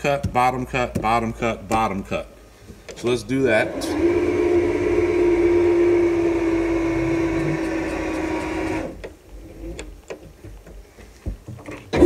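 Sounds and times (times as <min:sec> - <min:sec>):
paper cutter motor humming: 0:03.6 - 0:09.0.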